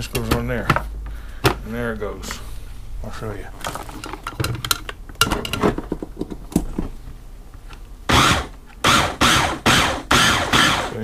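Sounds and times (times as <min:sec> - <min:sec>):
plastic clicks and knocks: 0:03.6 - 0:06.9
hand blender rasping bursts: 0:08.1 - 0:11.0.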